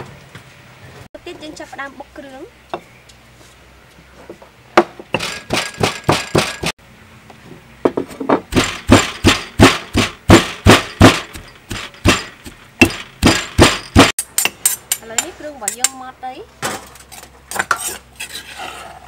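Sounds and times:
stone pestle pounding in mortar: 0:04.8 - 0:06.7, 0:08.5 - 0:16.0.

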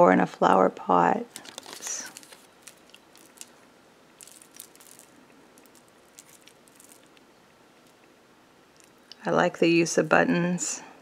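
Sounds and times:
glass beads and charms jingling: 0:04.2 - 0:07.2.

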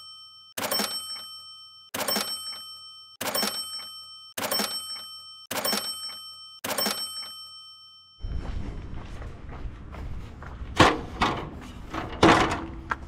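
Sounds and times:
metal clanks: 0:10.8 - 0:12.8.

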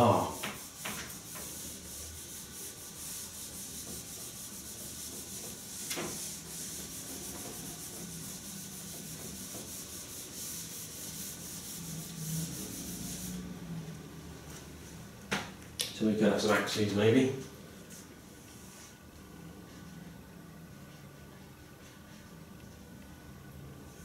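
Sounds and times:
eraser rubbing a whiteboard: 0:00.0 - 0:13.5.

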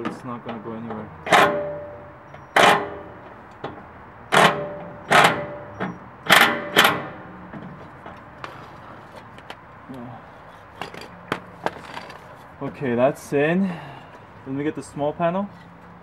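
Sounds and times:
hammer blows on metal: 0:01.2 - 0:03.3, 0:04.3 - 0:07.2.

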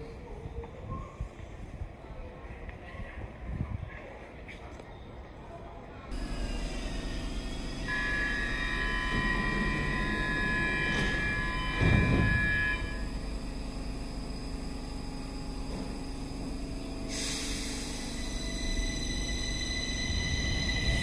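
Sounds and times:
train high-pitched whine: 0:06.1 - 0:21.0
train low rumble: 0:06.1 - 0:21.0.

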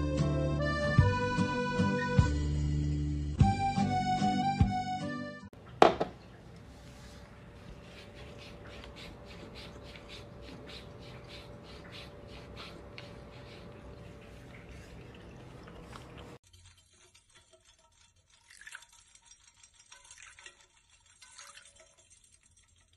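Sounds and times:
cat lapping water: 0:05.6 - 0:22.9.

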